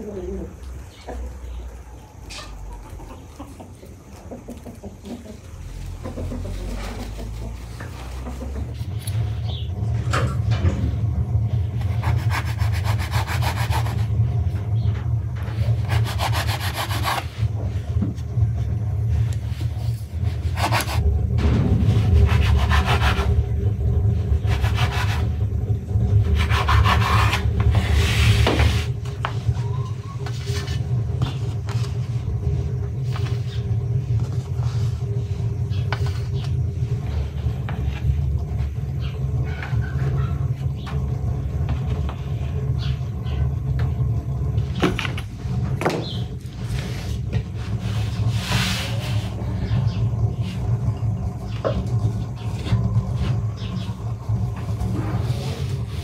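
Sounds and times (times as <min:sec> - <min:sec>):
steady low rumble: 0:00.0 - 0:56.0
pastry cutter scraping dough: 0:11.7 - 0:14.2, 0:15.4 - 0:17.6, 0:19.6 - 0:21.1, 0:21.8 - 0:23.4, 0:24.3 - 0:25.4, 0:26.2 - 0:29.4
dough rubbed on wooden board: 0:11.8 - 0:14.2, 0:15.6 - 0:17.5, 0:26.2 - 0:29.4.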